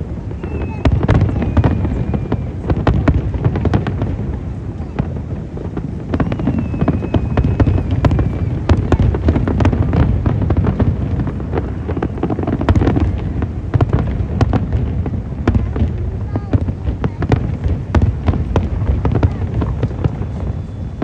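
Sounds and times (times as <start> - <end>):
fireworks booming: 0.0 - 21.0
sharp cracks of fireworks: 0.0 - 21.0
faint thin whistle: 0.4 - 2.7, 6.2 - 8.8, 19.9 - 21.0.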